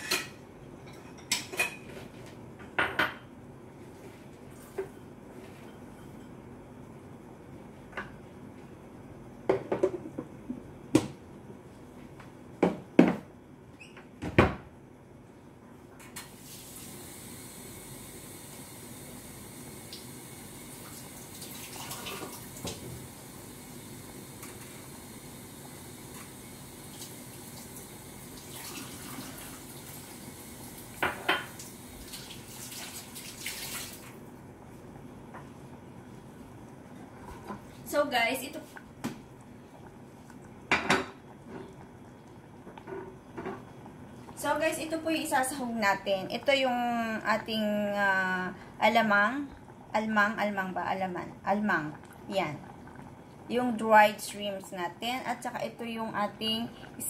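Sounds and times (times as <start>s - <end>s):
stew boiling and spattering: 16.3s - 57.0s.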